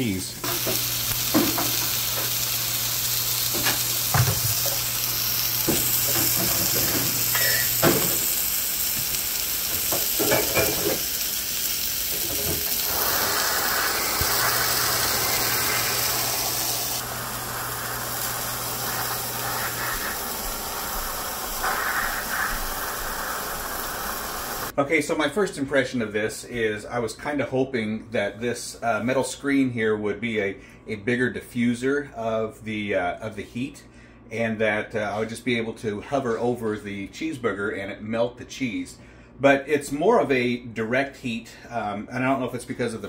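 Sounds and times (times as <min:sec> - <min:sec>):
propane torch hissing: 0:00.0 - 0:24.8.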